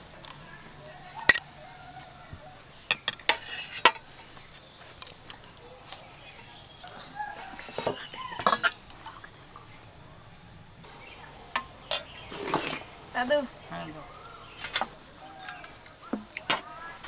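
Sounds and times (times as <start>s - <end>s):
ladle clinking against steel bowls: 2.9s - 4.1s, 7.3s - 9.3s, 11.2s - 13.1s.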